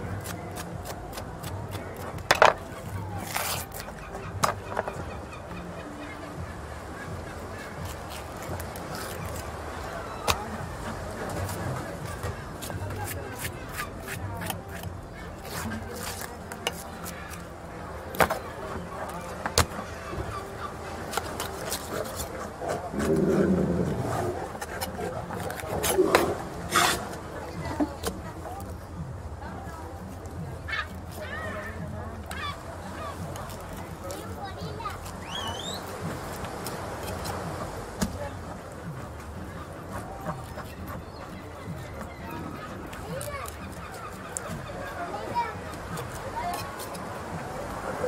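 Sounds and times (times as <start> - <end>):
background hubbub: 0.0 - 48.0
knife scraping fish scales: 0.2 - 5.0, 7.6 - 9.5, 11.4 - 17.5, 24.6 - 27.2.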